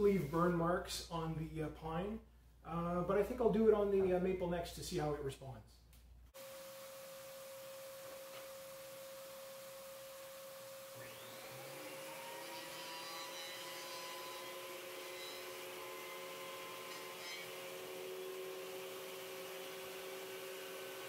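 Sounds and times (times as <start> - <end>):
motor spinning up and whirring: 6.4 - 12.0.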